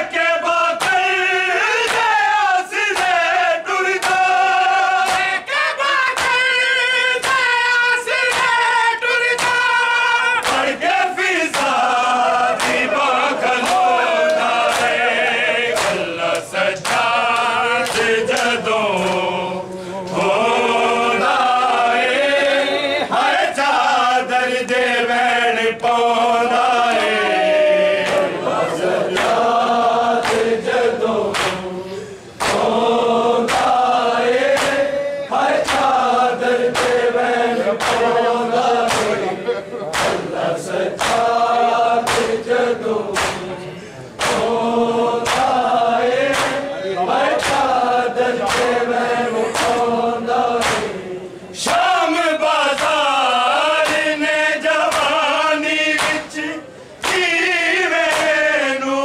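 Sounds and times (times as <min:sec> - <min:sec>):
men chanting in chorus: 0:00.0 - 0:59.0
hands slapping chests: 0:00.8 - 0:01.1, 0:01.8 - 0:02.1, 0:02.9 - 0:03.2, 0:04.0 - 0:04.3, 0:05.0 - 0:05.4, 0:06.1 - 0:06.4, 0:07.2 - 0:07.5, 0:08.3 - 0:08.6, 0:09.3 - 0:09.7, 0:10.4 - 0:10.8, 0:11.4 - 0:15.0, 0:15.7 - 0:19.3, 0:28.0 - 0:28.4, 0:29.2 - 0:29.4, 0:30.2 - 0:31.7, 0:32.4 - 0:32.8, 0:33.4 - 0:34.9, 0:35.5 - 0:36.0, 0:36.6 - 0:38.2, 0:38.8 - 0:39.3, 0:39.9 - 0:41.4, 0:42.0 - 0:42.5, 0:43.1 - 0:43.6, 0:44.2 - 0:44.6, 0:45.2 - 0:46.6, 0:47.3 - 0:47.8, 0:48.4 - 0:48.9, 0:49.5 - 0:49.9, 0:50.6 - 0:51.0, 0:52.7 - 0:53.0, 0:53.8 - 0:54.2, 0:54.8 - 0:55.2, 0:56.0 - 0:56.4, 0:57.0 - 0:57.4, 0:58.0 - 0:58.4.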